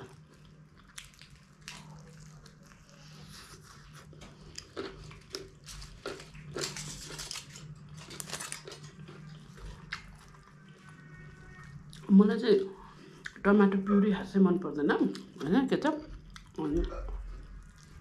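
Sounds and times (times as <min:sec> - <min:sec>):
person chewing food: 0:00.0 - 0:12.1, 0:16.1 - 0:18.0.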